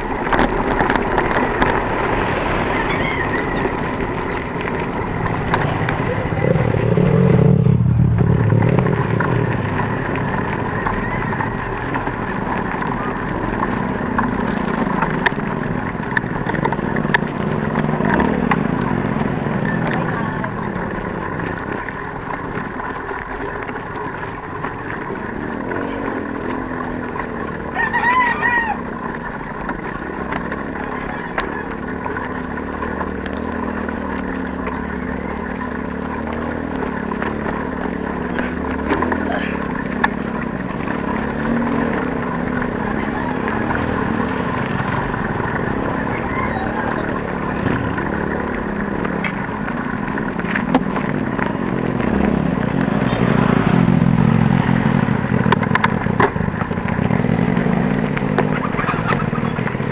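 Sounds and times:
background rumble: 0.0 - 59.9
rooster crowing: 27.7 - 29.1, 30.8 - 31.8, 46.0 - 47.0.

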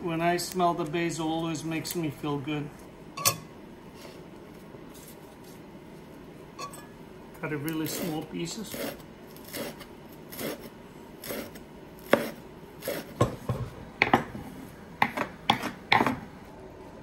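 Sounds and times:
knife chopping on wooden board: 11.2 - 14.4, 15.0 - 16.3.

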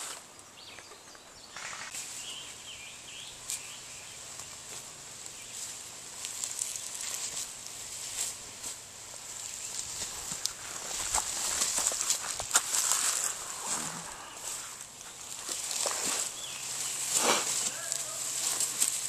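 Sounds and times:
bird chirping: 0.4 - 4.6, 14.0 - 17.1
rustling in leaf litter: 1.6 - 19.0
twigs cracking: 3.4 - 19.0.

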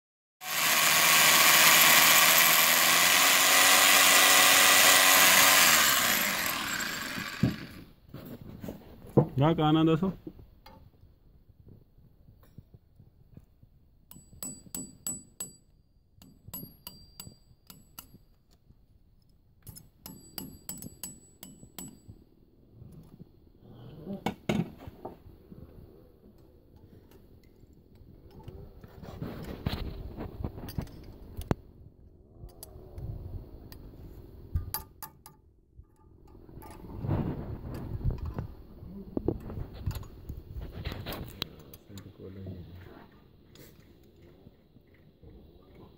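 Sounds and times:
hammer drill boring into concrete: 0.4 - 7.9.

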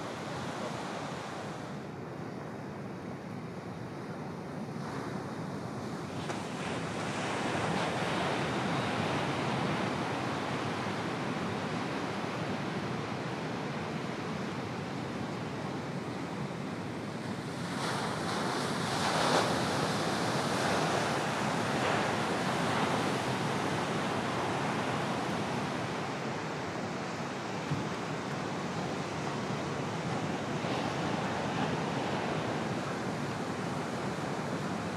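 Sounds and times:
waves breaking: 16.8 - 34.9.

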